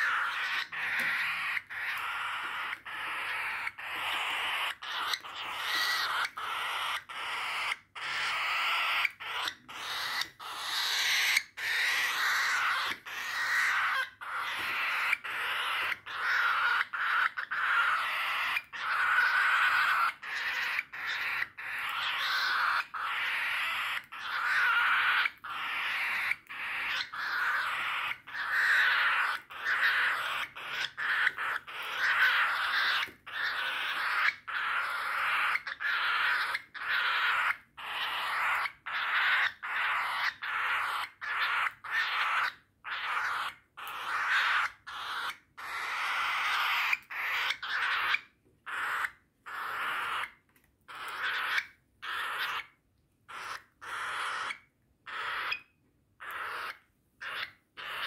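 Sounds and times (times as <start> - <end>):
bird chick begging calls: 0.0 - 58.0.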